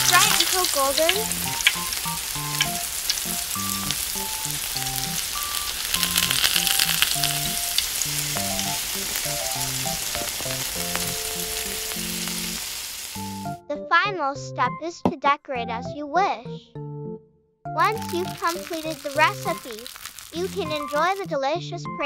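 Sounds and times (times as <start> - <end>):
simple background melody: 0.0 - 12.6, 13.2 - 19.6, 20.4 - 22.0
hot oil sizzling and crackling: 0.0 - 13.6, 17.8 - 21.3.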